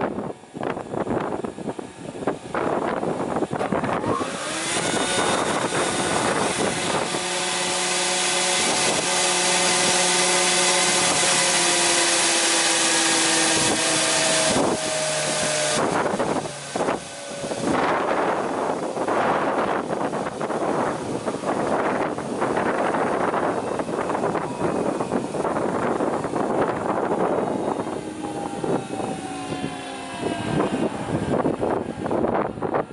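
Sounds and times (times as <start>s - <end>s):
rushing wind-like noise: 0.0s - 32.9s
spindle moulder whine: 0.0s - 32.9s.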